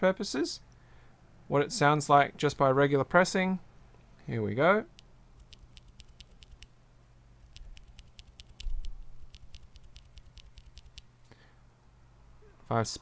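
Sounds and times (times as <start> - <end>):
keyboard switch clicking: 5.4 - 6.7, 7.5 - 11.1.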